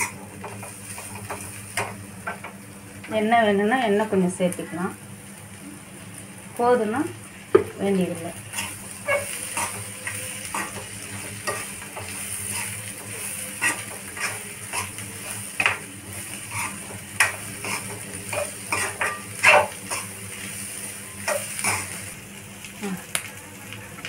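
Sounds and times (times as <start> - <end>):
potatoes sizzling: 0.0 - 24.0
spoon scraping metal wok: 8.5 - 15.8, 16.4 - 20.2.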